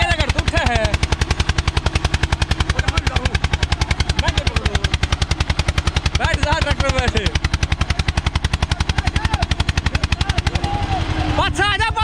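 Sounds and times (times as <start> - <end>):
diesel tractor engine under heavy load: 0.0 - 12.0.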